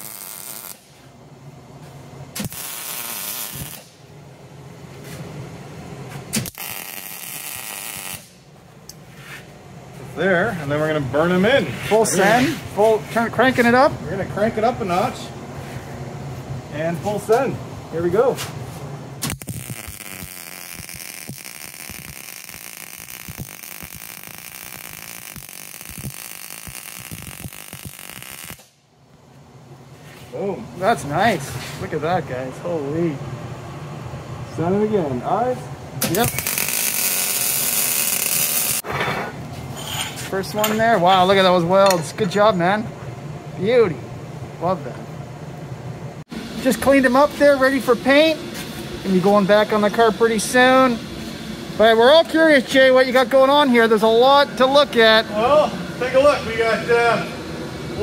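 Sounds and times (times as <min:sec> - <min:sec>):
welding arc crackling and hissing: 0:00.0 - 0:01.1, 0:02.4 - 0:04.0, 0:06.3 - 0:08.5, 0:19.2 - 0:28.8, 0:36.0 - 0:38.8, 0:46.4 - 0:57.2.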